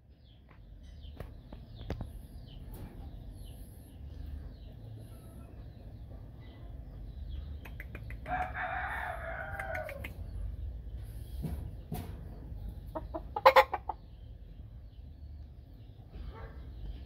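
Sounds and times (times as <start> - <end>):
rapid clucks: 7.6 - 8.6, 12.8 - 14.1
rooster crowing: 8.3 - 10.1.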